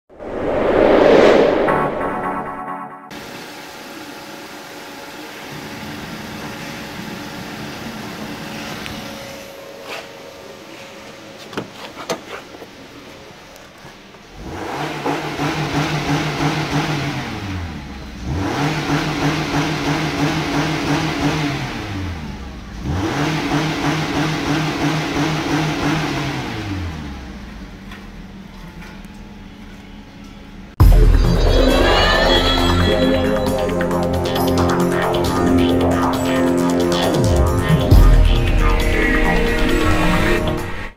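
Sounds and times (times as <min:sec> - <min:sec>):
car engine idling and revving: 0:13.3 - 0:31.2.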